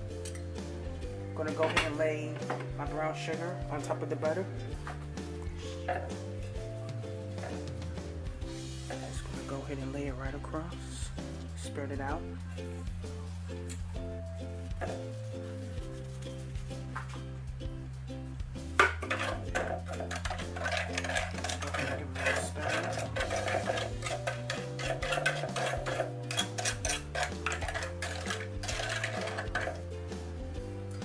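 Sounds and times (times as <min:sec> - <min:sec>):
soft background music: 0:00.0 - 0:31.0
fingers scraping metal pan: 0:07.3 - 0:07.9, 0:18.8 - 0:29.9.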